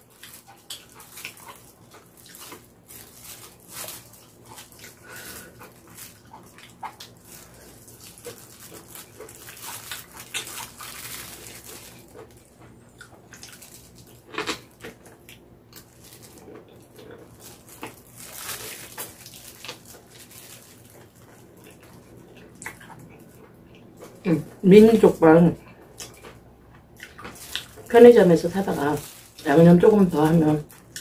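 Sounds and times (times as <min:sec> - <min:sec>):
plastic glove crinkling: 0:00.0 - 0:12.6, 0:13.2 - 0:23.4, 0:27.0 - 0:31.0.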